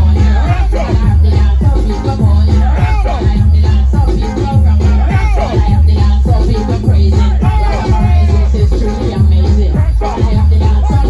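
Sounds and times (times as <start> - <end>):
bass-heavy backing track: 0.0 - 11.0
woman singing into a microphone: 0.0 - 11.0.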